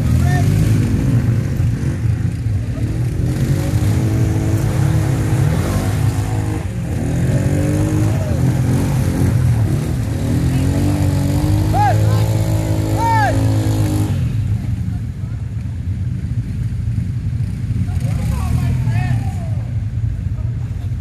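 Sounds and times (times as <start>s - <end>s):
engine revving: 0.0s - 14.6s
off-road vehicle engines running: 0.0s - 21.0s.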